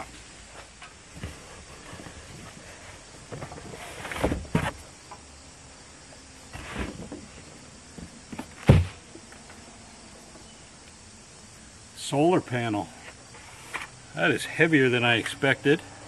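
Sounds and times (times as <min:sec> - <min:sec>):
cardboard box scrapes and knocks: 0:01.2 - 0:04.8, 0:06.5 - 0:07.2
thump: 0:08.0 - 0:09.0.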